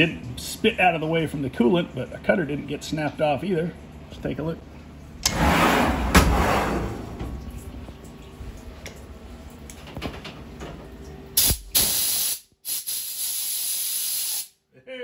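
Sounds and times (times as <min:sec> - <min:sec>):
compressed-air blow gun hissing: 0:11.4 - 0:14.5.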